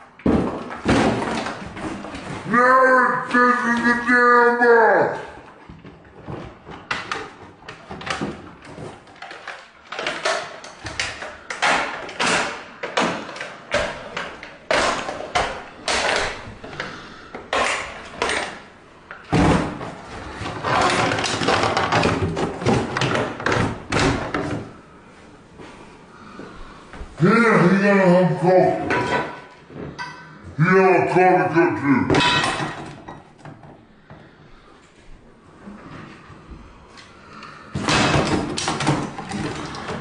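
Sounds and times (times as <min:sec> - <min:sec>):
plastic parts knocking and scraping: 0:00.0 - 0:02.6, 0:05.4 - 0:24.8, 0:37.7 - 0:40.0.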